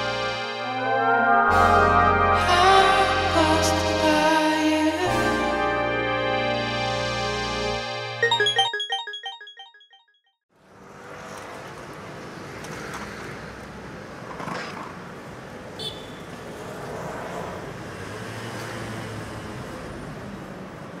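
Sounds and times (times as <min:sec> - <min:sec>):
high chirp: 0:08.2 - 0:10.2
traffic hum: 0:10.6 - 0:21.0.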